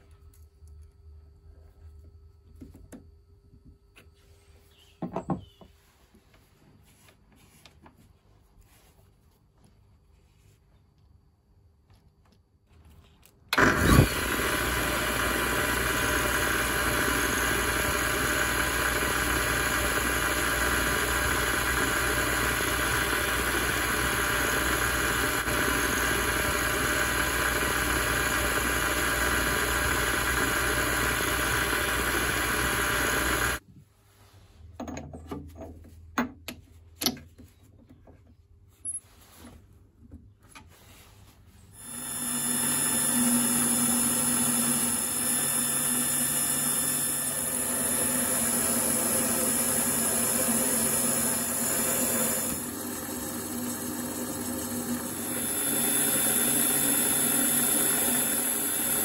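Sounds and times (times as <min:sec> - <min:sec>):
drill boring into aluminium: 0:13.5 - 0:33.6, 0:41.8 - 0:59.0
lathe motor whining: 0:13.5 - 0:33.6, 0:41.8 - 0:59.0.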